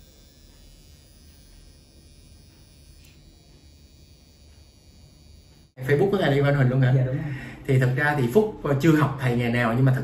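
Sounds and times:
tattoo pen buzzing: 0.0s - 5.8s.

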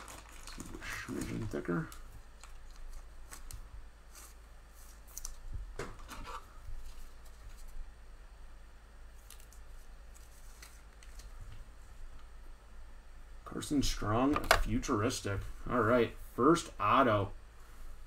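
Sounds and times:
plastic rustling: 0.0s - 7.9s.

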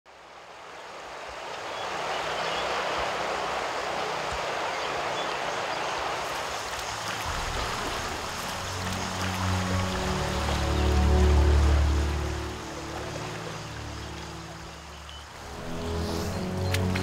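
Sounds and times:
flowing river water: 0.1s - 17.0s.

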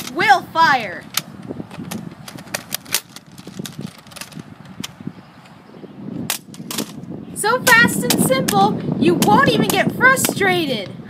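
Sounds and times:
sharp plastic clicks: 1.0s - 5.6s, 6.3s - 7.1s.

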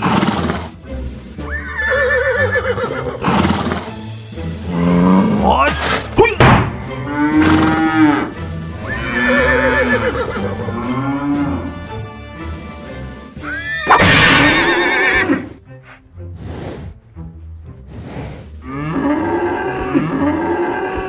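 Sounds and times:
background music: 0.0s - 21.0s
horse whinnying: 1.4s - 3.9s, 7.1s - 10.6s, 13.4s - 15.6s
cow mooing: 7.0s - 11.8s, 18.6s - 21.0s.

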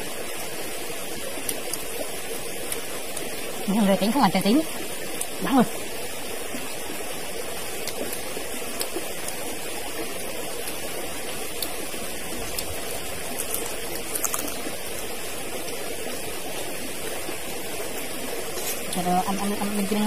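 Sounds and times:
stream water flowing: 0.0s - 20.0s.

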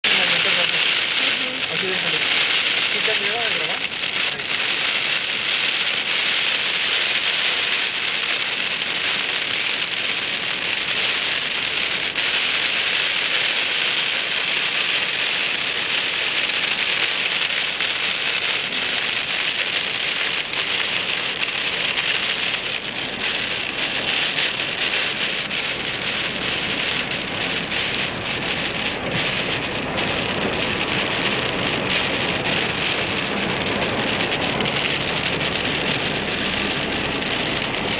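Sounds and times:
rain and snow hissing on car: 0.0s - 37.9s.

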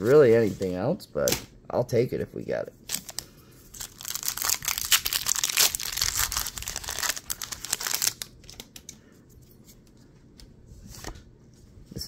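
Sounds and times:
foil wrapper crinkling and tearing: 2.9s - 8.4s.

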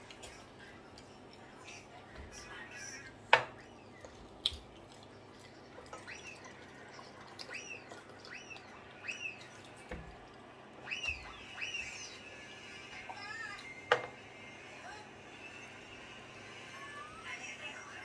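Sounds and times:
small bird chirping: 5.1s - 9.7s, 10.8s - 12.4s.

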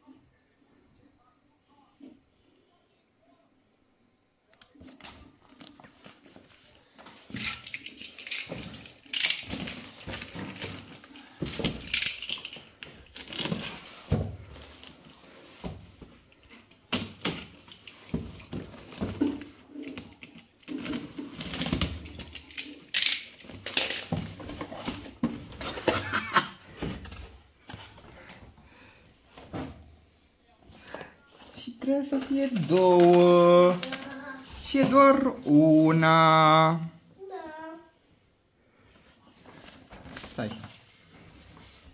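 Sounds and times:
cardboard and plastic rustling: 4.7s - 28.6s, 30.7s - 35.9s, 38.9s - 41.9s.

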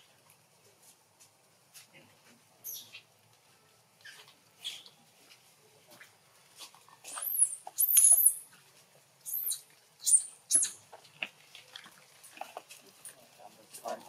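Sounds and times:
baby monkey squealing: 7.1s - 8.4s, 9.2s - 10.8s.

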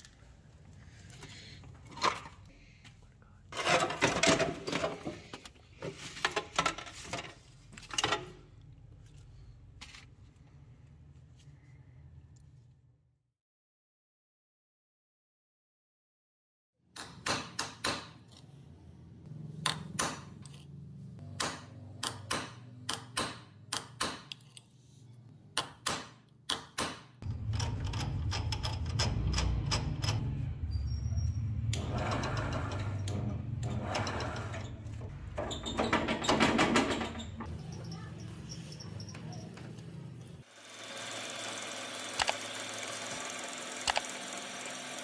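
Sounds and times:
drill press motor running: 31.6s - 35.2s, 40.5s - 45.0s.

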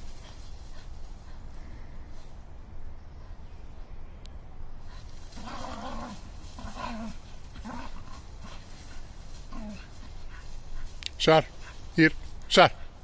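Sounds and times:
leaves rustling under scuffling: 0.0s - 2.4s, 4.8s - 12.6s
dog growling: 5.4s - 8.6s, 9.4s - 9.9s.

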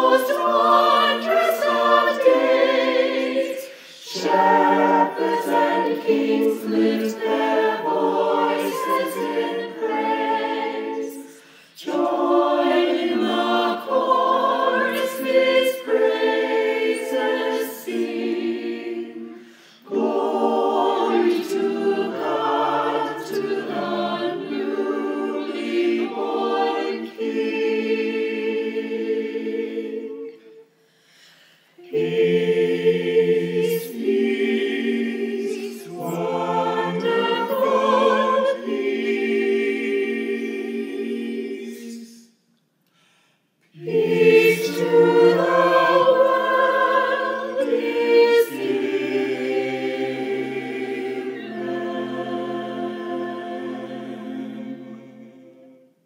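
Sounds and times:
mixed choir singing a hymn: 0.0s - 42.4s, 43.6s - 56.0s.

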